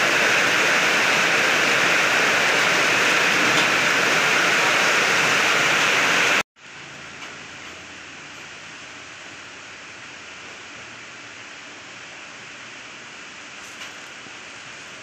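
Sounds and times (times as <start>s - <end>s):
disk mill grinding corn: 0.0s - 6.4s.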